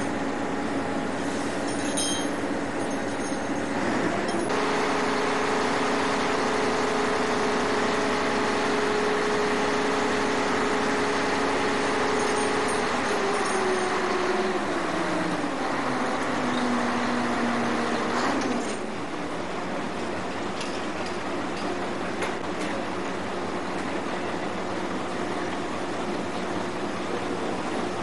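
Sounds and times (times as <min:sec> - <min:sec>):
ship engine humming: 0:03.7 - 0:18.2.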